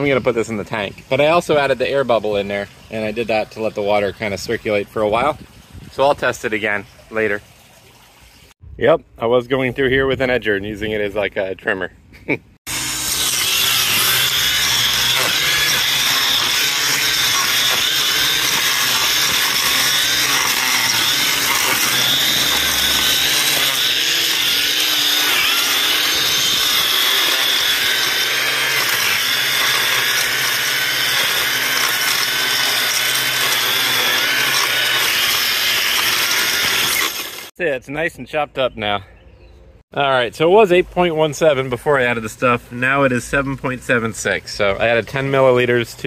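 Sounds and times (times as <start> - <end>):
string trimmer cutting dry grass: 12.7 - 37.6.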